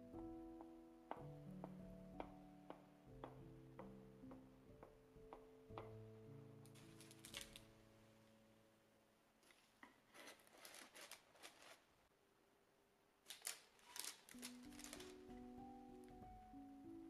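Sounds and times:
parchment paper rustling: 6.7 - 7.7, 9.4 - 12.1, 13.2 - 16.1.

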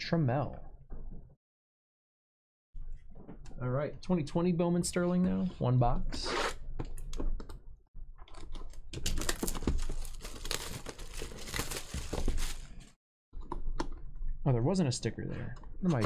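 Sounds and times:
cellophane tearing and crinkling: 8.9 - 12.9.

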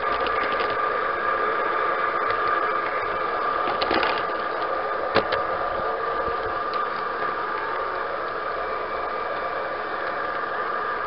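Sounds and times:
model train drive whine: 0.0 - 11.0
wheels clicking on track: 0.0 - 11.0.

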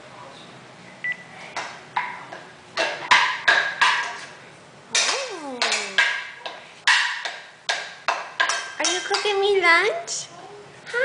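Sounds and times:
wooden spoon banging metal pan: 2.8 - 4.2, 4.9 - 9.5.

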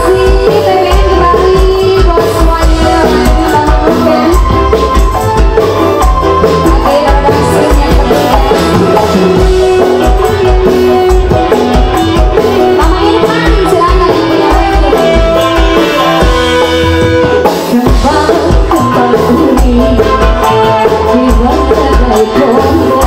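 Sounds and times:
live band playing: 0.0 - 23.0.

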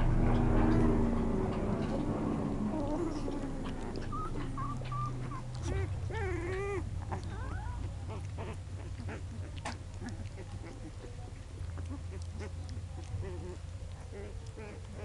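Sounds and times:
low steady hum: 0.0 - 15.0
puppies whimpering and squeaking: 1.9 - 15.0.

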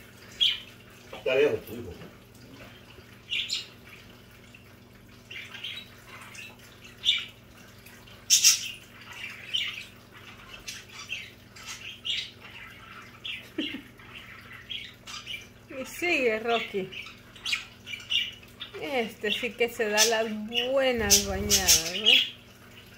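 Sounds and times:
budgerigars chirping: 3.3 - 3.8, 8.3 - 15.5, 16.4 - 22.4
water splashing: 13.2 - 22.8
wing fluttering: 20.9 - 22.2.

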